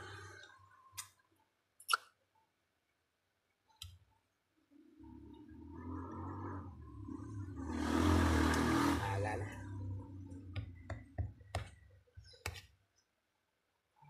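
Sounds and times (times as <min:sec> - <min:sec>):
vehicle passing: 0:05.0 - 0:10.6.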